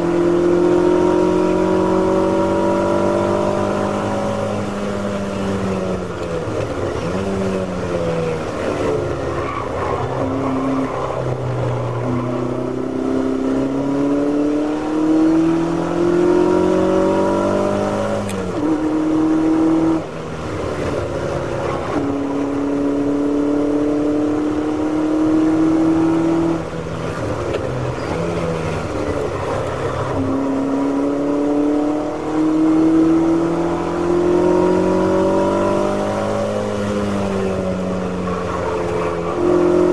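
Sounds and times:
race car engine revving: 0.0 - 7.8, 8.4 - 39.9.

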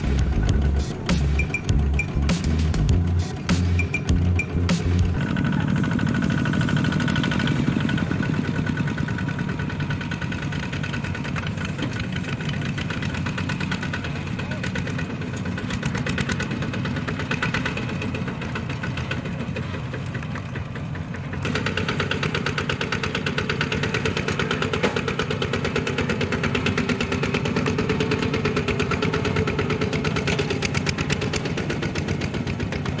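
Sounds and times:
diesel walking tractor engine running: 0.0 - 33.0.

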